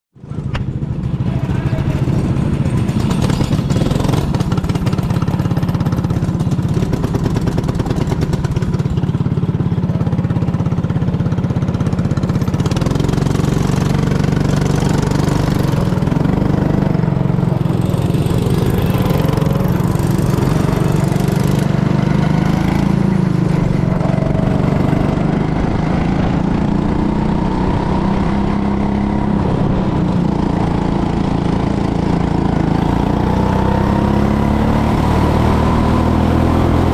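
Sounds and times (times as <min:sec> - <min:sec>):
go-kart engine running: 0:00.2 - 0:36.9.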